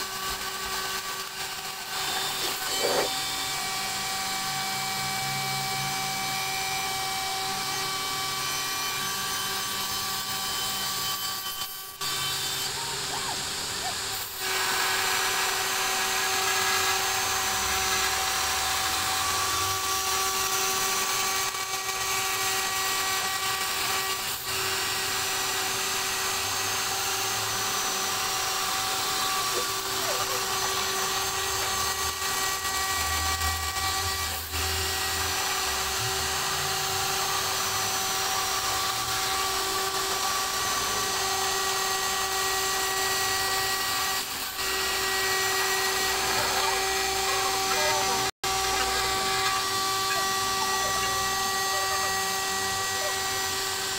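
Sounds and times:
router spindle high whine: 0:00.0 - 0:53.9
hiss of cutting: 0:01.7 - 0:03.4.

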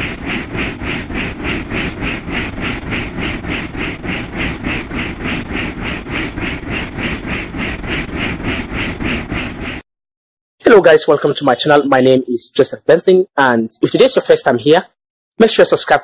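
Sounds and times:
rotor beat: 0:00.0 - 0:09.8.

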